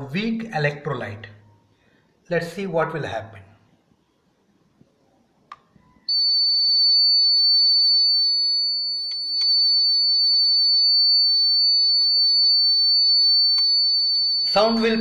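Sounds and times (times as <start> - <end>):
high-pitched buzzer tone: 8.2 - 15.0.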